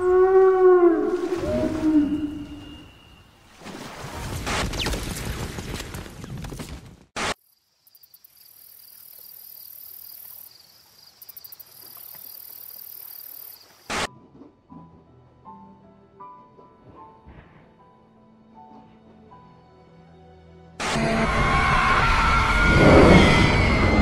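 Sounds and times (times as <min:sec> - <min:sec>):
night insects chirring: 0:07.3 - 0:14.1
loud rushing storm wind: 0:21.0 - 0:24.0.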